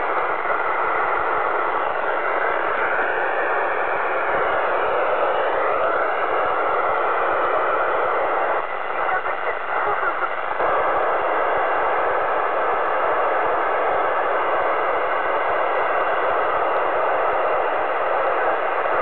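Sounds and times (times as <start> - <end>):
radio static hiss: 0.0 - 19.0.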